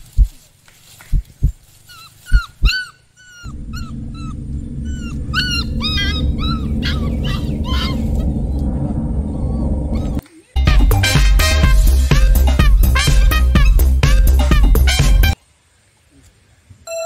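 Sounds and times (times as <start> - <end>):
puppy whimpering and yipping: 1.9 - 8.3
loud low rumble: 3.5 - 13.7.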